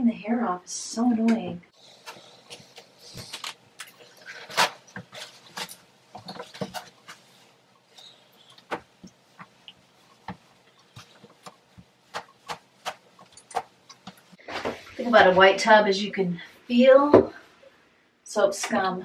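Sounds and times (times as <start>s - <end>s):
paper towels rustling: 1.8s - 15.4s.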